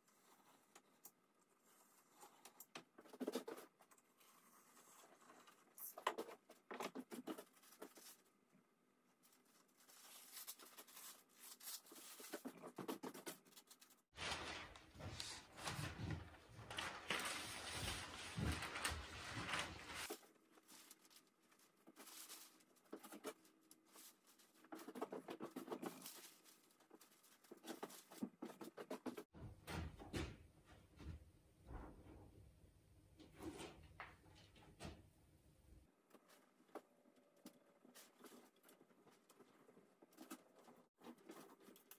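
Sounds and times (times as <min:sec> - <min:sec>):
paper rustling and crackling: 0:09.2 - 0:29.3.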